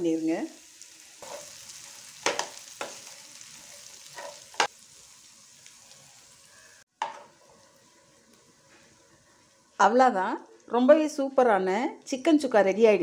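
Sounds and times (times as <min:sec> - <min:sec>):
faint sizzle: 0:00.0 - 0:13.0
metal spatula scraping a pan: 0:01.2 - 0:04.7.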